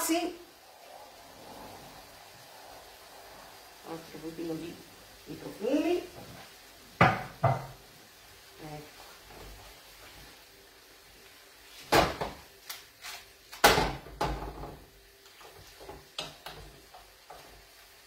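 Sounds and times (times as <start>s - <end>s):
tongs clanking on frying pan: 16.1s - 16.7s.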